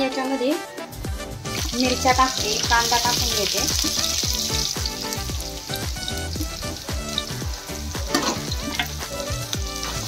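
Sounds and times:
onion sizzling in hot oil: 1.0s - 10.0s
metal spatula scraping pan: 8.1s - 10.0s.

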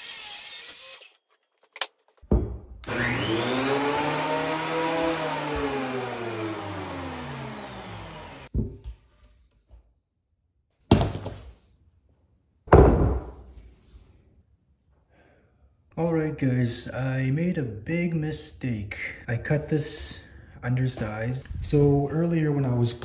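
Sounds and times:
machine whir rising and falling: 2.8s - 8.5s.

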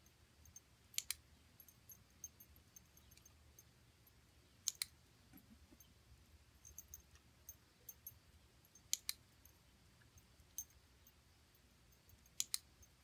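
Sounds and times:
faint ticks: 11.9s - 13.0s.

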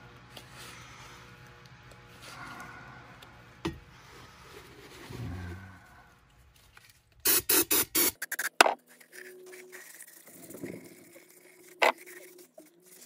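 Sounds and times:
faint rubbing and handling: 8.8s - 13.0s.

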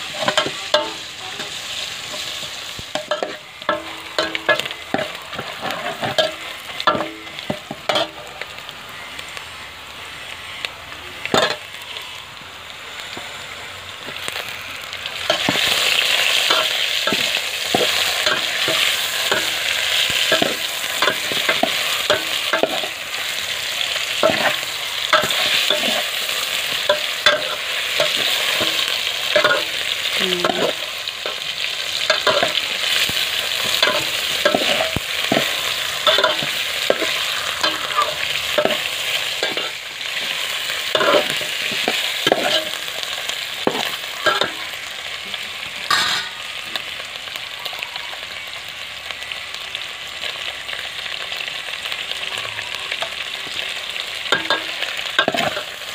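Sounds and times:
fish sizzling in hot oil: 0.0s - 55.9s
metal ladle scraping a pot: 0.1s - 8.2s, 32.0s - 42.8s.

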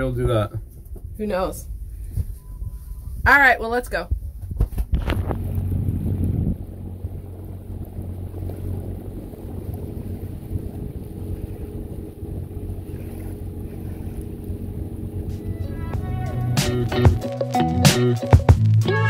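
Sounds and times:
wind on microphone: 0.0s - 17.2s
boat engine drone: 5.0s - 19.0s.

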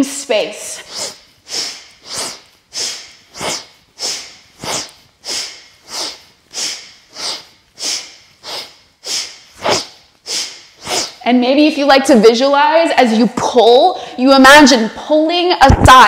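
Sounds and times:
woman breathing forcefully: 0.7s - 11.2s.

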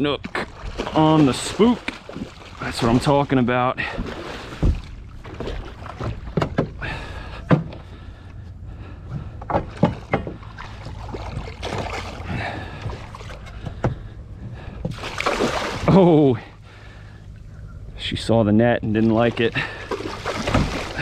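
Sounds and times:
steady low rumble: 0.0s - 21.0s
knocks and clatter on boat deck: 1.8s - 8.0s, 9.0s - 15.0s, 20.3s - 21.0s
fish splashing at surface: 9.7s - 13.4s, 14.9s - 16.0s, 19.5s - 21.0s.

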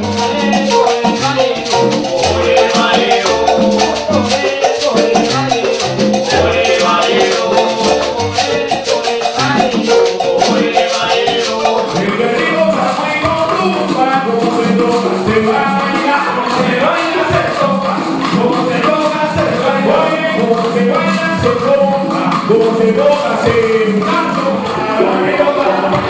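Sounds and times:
hand percussion beat: 0.0s - 26.0s
salsa band music: 0.0s - 26.0s.

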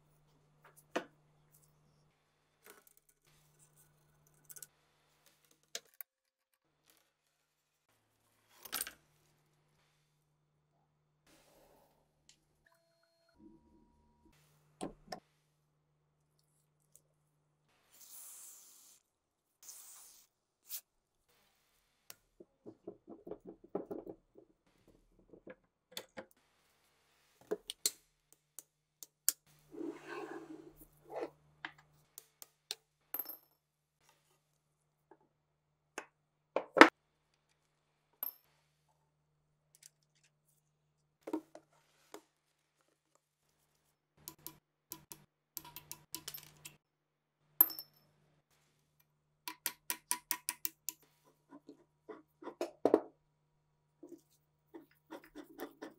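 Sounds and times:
metal scrape: 29.7s - 31.3s.

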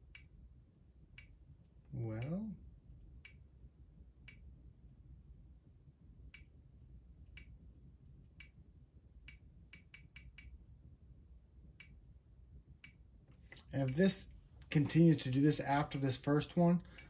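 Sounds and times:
quiet room hum: 0.0s - 17.0s.

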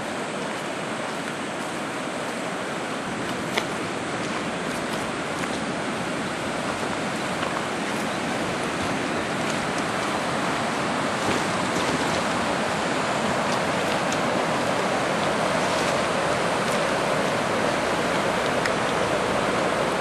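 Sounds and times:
river rapid rushing water: 0.0s - 20.0s.

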